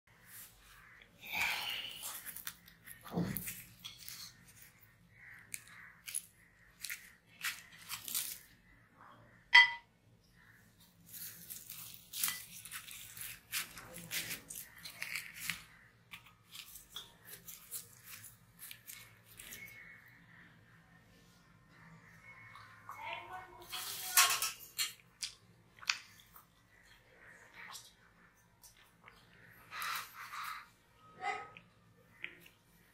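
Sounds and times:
flatbread tearing and crackling: 1.6 - 8.8, 10.4 - 20.2.

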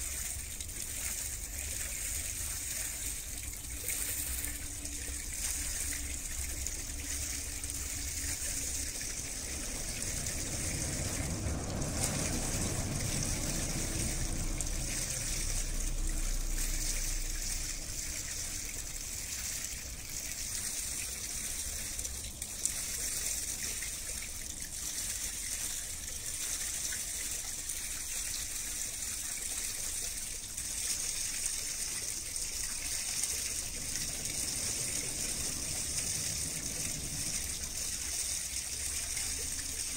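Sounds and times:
water rushing and splashing: 0.0 - 39.9
low rumble: 3.2 - 19.2, 32.6 - 39.9.

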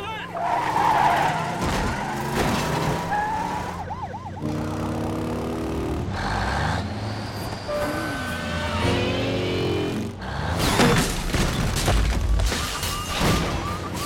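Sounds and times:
heavy vehicle engines: 0.0 - 11.7
police siren yelping: 3.0 - 4.7.

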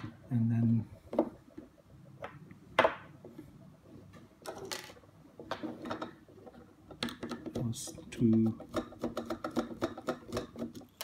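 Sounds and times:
plastic parts clicking and knocking: 4.4 - 11.0.

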